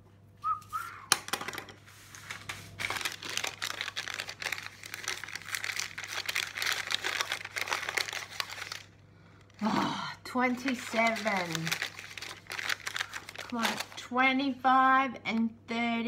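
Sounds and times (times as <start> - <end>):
plastic bag crinkling and tearing: 2.2 - 14.1.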